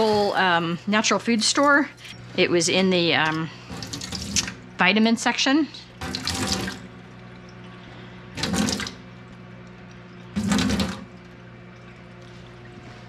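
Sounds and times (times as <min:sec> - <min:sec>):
faucet water filling a pitcher: 0:03.3 - 0:04.7, 0:05.9 - 0:13.0.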